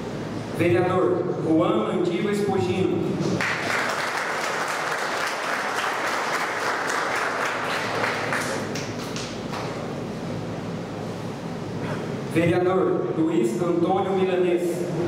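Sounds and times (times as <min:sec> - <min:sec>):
audience applauding: 0:03.4 - 0:09.7.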